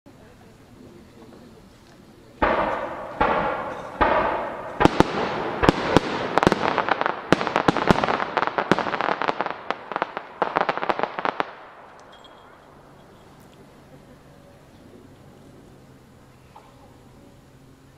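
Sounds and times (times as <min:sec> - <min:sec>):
fireworks bangs and crackling: 0:00.8 - 0:14.0.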